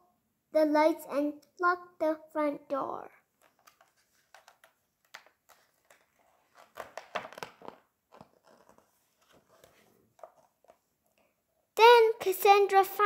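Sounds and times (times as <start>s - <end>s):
paper rustling and crinkling: 3.4s - 10.8s.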